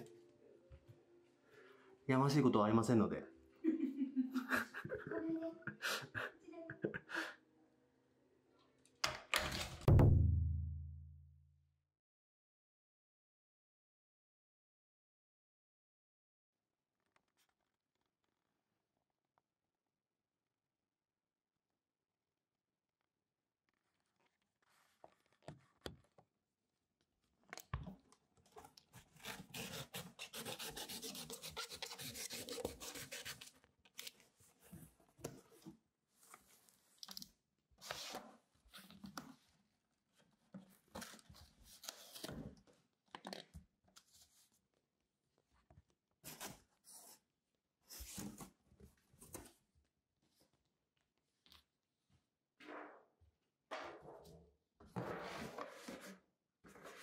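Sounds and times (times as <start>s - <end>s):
cardboard rasping and tearing: 29.0s - 33.6s.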